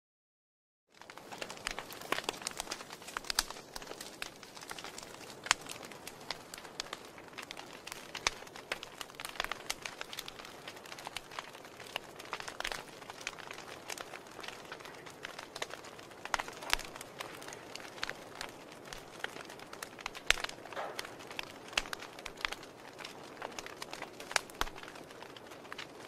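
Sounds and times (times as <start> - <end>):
soft hiss of embers: 0.9 - 26.0
wood fire crackling: 0.9 - 26.0.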